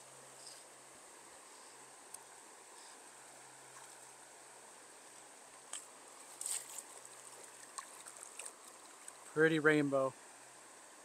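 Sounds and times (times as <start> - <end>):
faint running stream water: 0.0 - 11.0
short water splashes: 6.3 - 9.4.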